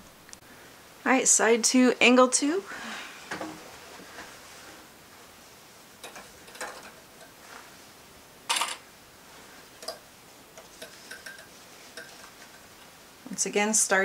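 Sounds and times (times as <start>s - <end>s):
fabric rustle: 2.8s - 6.4s, 7.4s - 8.0s.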